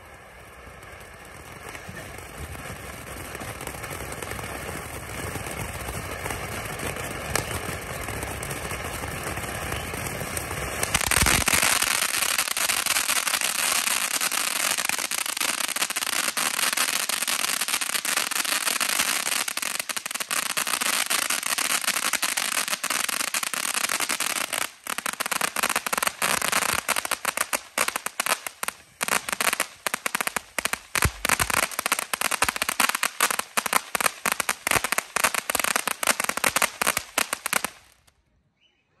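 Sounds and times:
fountain firework crackling hiss: 0.0s - 38.1s.

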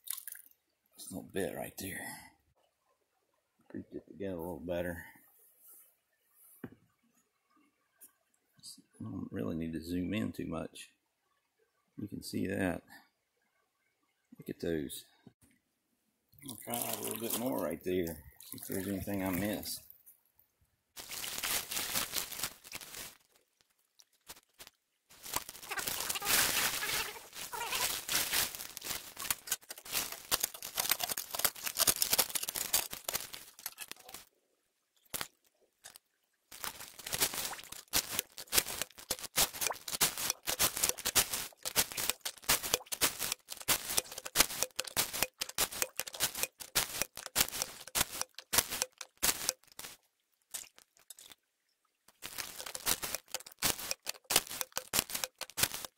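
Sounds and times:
gravel crunching and rattling: 36.6s - 50.0s.

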